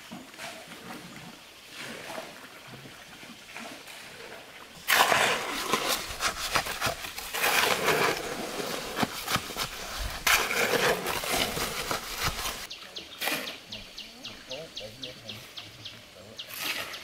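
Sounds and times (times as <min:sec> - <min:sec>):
hoe and shovel scraping concrete mix: 0:03.6 - 0:13.8, 0:16.4 - 0:17.0.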